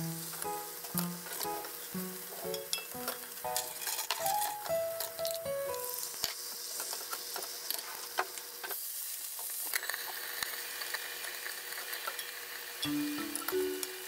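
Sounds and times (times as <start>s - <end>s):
egg sizzling in a pan: 0.0s - 14.0s
chopsticks and spatula scraping: 2.4s - 8.8s
liquid hissing in hot pan: 5.8s - 14.0s.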